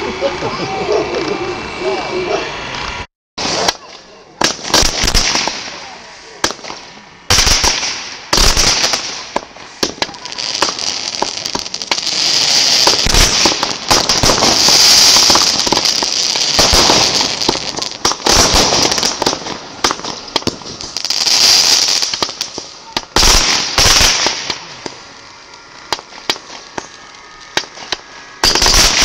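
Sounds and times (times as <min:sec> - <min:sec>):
firework fountains hissing and crackling: 0:00.0 - 0:29.0
firework pops: 0:03.4 - 0:05.7, 0:12.8 - 0:21.0, 0:21.9 - 0:29.0.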